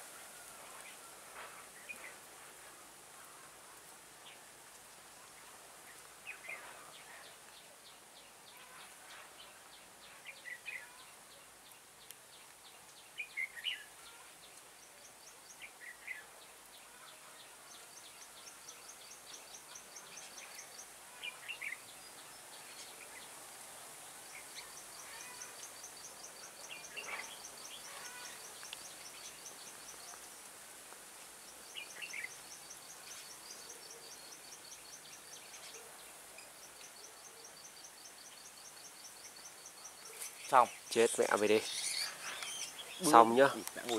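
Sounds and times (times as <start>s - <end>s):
steady high hiss: 0.0s - 43.9s
bulbuls singing: 17.5s - 43.9s.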